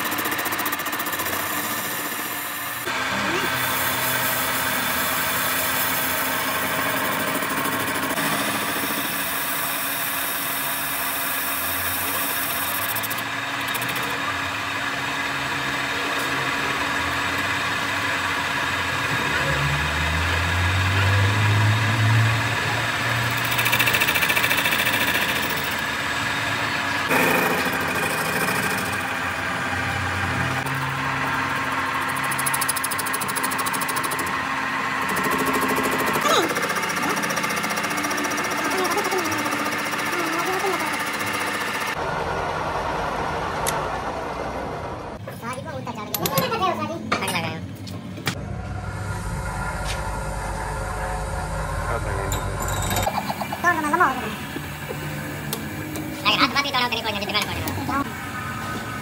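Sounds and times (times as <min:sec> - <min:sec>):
metal lathe cutting steel: 0:00.0 - 0:42.4, 0:48.4 - 0:59.0
low rumble: 0:48.4 - 0:53.0.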